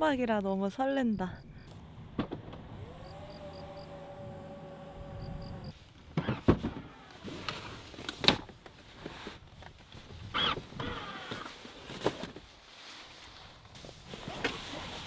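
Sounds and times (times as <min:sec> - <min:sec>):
tailgate motor whine: 0:01.7 - 0:07.2
seat backs clunking: 0:01.8 - 0:08.5.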